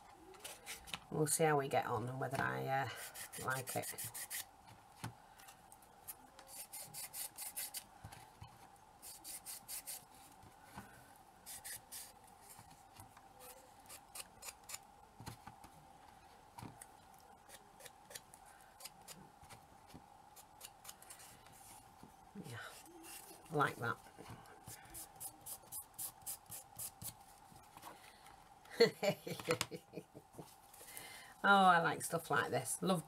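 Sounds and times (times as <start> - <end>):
faint steady hum: 0.0 - 33.0
scratchy rubbing strokes: 2.9 - 4.5, 6.1 - 7.8, 9.0 - 10.4, 11.4 - 12.7.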